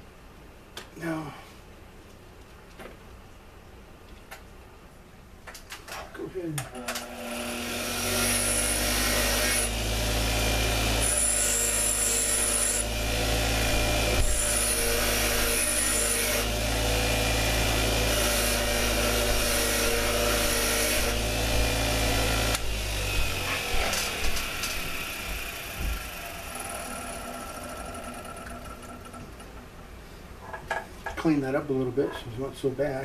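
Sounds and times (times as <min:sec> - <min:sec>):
bench grinder motor humming: 0:06.8 - 0:29.2.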